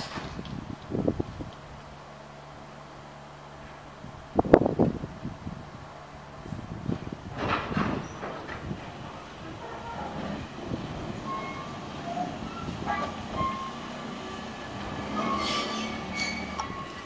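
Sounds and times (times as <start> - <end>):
locomotive wheel rumble: 0.0 - 17.0.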